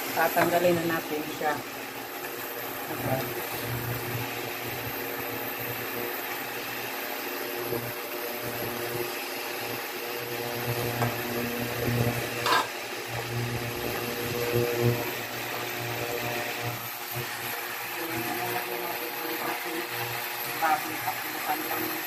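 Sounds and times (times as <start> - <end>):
liquid bubbling and sizzling in a wok: 0.0 - 22.0
steady mechanical hum: 0.0 - 22.0
spatula scraping a pan: 12.4 - 12.8.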